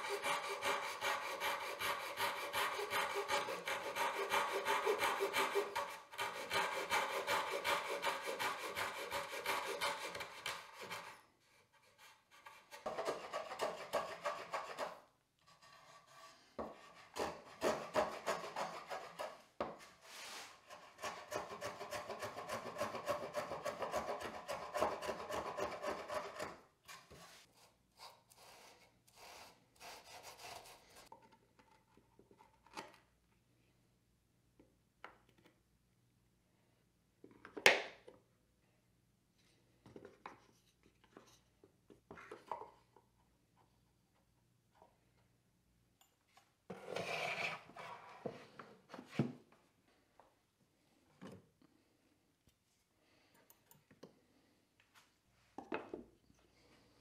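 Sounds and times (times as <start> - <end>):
pull saw cutting wood: 0.0 - 11.1
hand plane strokes: 0.0 - 31.1.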